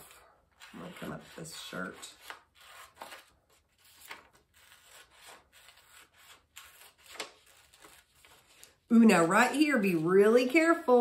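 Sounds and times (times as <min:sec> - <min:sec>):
scissors cutting paper: 0:00.0 - 0:08.8.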